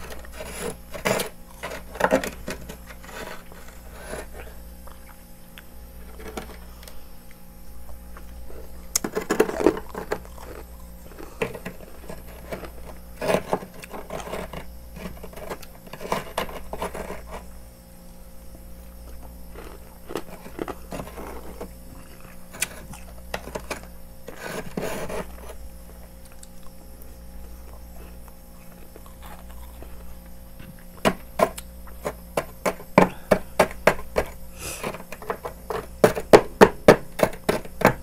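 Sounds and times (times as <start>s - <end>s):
metal spoon scraping frost: 0.0s - 4.6s, 8.6s - 17.6s, 19.5s - 25.6s, 34.6s - 36.3s
steady low hum: 0.0s - 38.0s.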